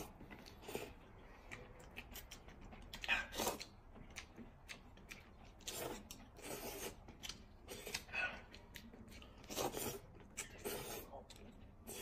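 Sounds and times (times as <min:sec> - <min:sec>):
people slurping noodles: 0:05.7 - 0:07.0, 0:09.4 - 0:11.2.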